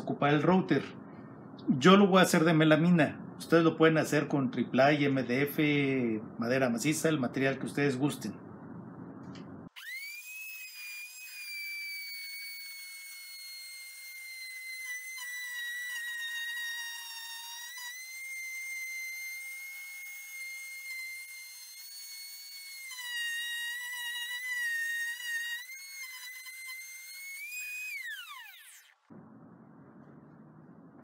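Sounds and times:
router cutting board whine: 9.8 - 29.1.

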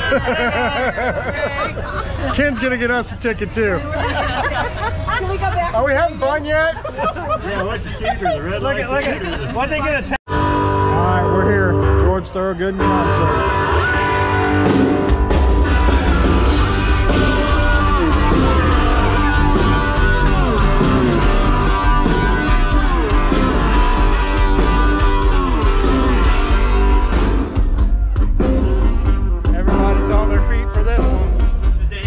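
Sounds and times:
live rock band: 10.3 - 12.0, 12.8 - 32.0.

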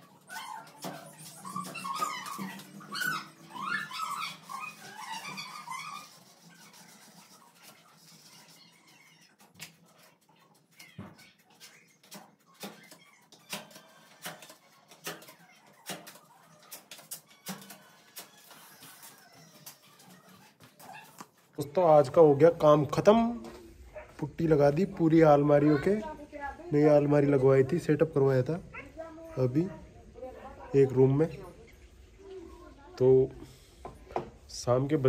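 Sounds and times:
dog whimpering and whining: 0.0 - 9.4.

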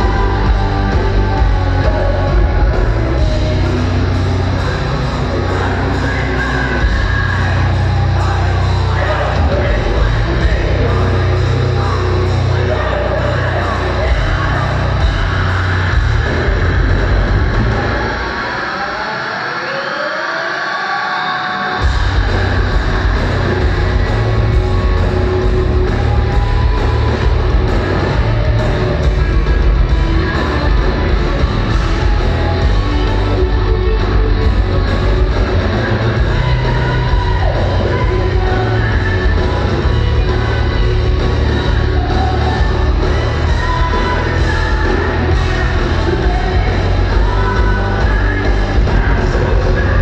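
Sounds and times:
live hard rock band: 0.0 - 19.6, 21.1 - 50.0
woman singing: 34.8 - 50.0.

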